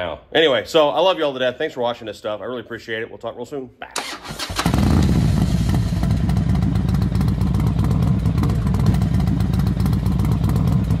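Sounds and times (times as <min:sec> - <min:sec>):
motorcycle engine idling: 0:04.6 - 0:11.0.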